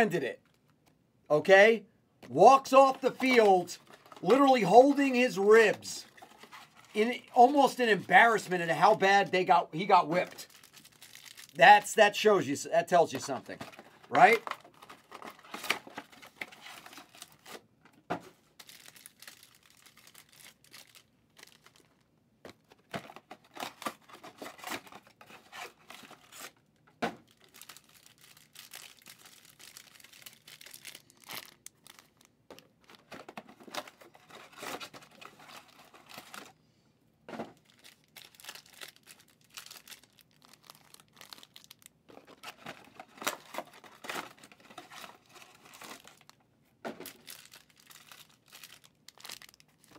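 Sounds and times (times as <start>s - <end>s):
cards being handled: 2.2s - 8.6s
wrappers tearing and crinkling: 9.4s - 11.8s, 13.2s - 17.6s, 18.6s - 22.0s, 27.2s - 33.1s, 37.6s - 46.4s, 47.0s - 49.9s.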